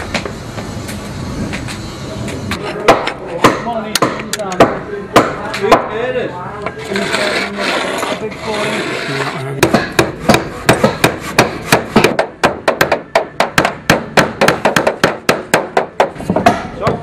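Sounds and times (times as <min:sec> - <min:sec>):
hammer hitting nail: 0:02.9 - 0:05.9, 0:09.6 - 0:17.0.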